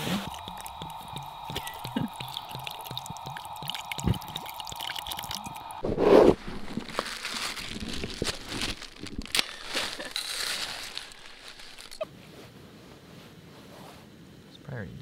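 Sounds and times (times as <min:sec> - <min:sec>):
snow crunching and crackling: 0:06.3 - 0:12.0.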